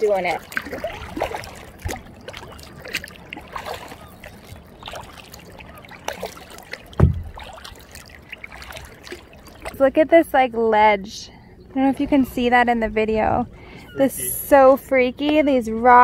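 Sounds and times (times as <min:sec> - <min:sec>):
kayak paddle strokes in water: 0:00.0 - 0:09.8
water dripping and splashing: 0:00.0 - 0:09.9
low thump: 0:07.0 - 0:07.4.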